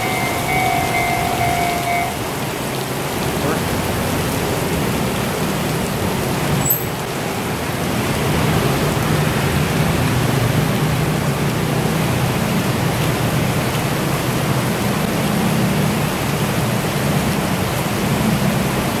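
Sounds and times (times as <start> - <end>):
heavy rain falling: 0.0 - 19.0.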